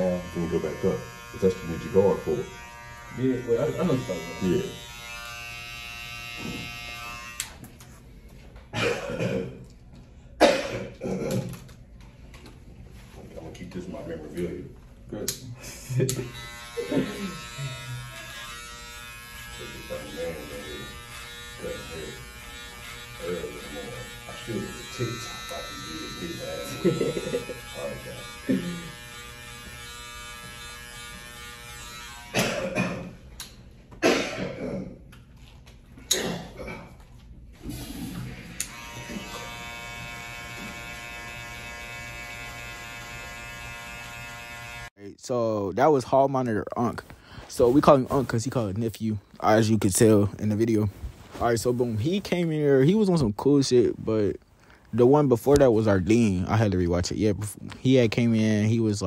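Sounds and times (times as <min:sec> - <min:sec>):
electric hair trimmer buzzing: 0:00.0 - 0:07.6, 0:16.1 - 0:32.4, 0:38.3 - 0:44.9
person coughing: 0:08.7 - 0:09.6, 0:10.4 - 0:11.5, 0:28.5 - 0:28.9, 0:32.3 - 0:33.2, 0:34.0 - 0:35.0, 0:36.1 - 0:37.0.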